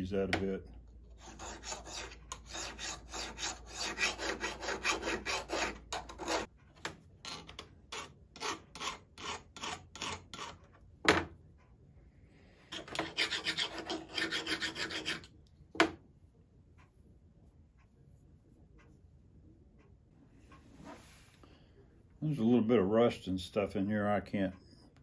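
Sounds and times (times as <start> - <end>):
hand file rasping on steel: 1.1 - 6.5, 7.2 - 10.6, 12.7 - 15.3.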